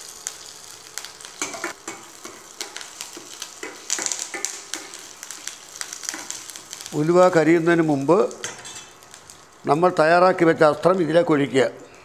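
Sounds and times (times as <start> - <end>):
seeds crackling and popping: 0.0 - 9.7
spices sizzling in hot oil: 0.0 - 10.2
metal spoon scraping a pan: 8.4 - 9.0.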